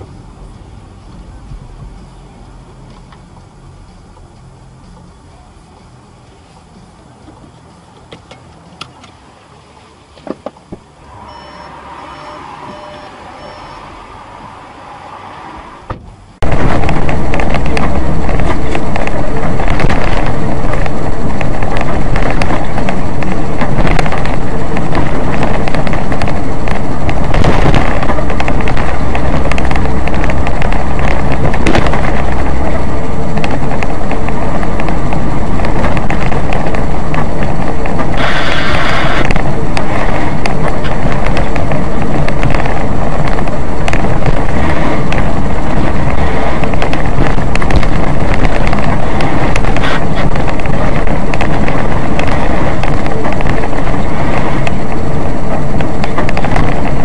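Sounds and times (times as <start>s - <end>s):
faint vehicle noise: 0.0s - 57.0s
loud vehicle and road noise: 0.0s - 57.0s
faint beeps: 11.0s - 15.7s.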